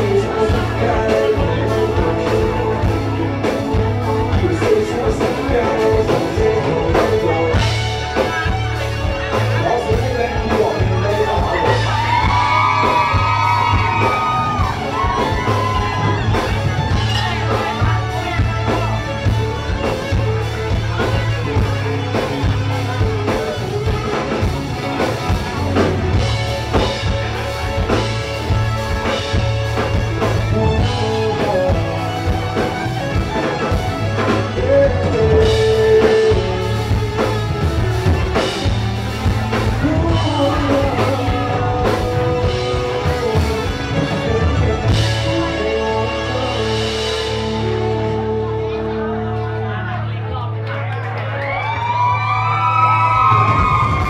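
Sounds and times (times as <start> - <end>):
person singing: 0.0 - 19.2, 29.8 - 50.4
live rock band: 0.0 - 54.0.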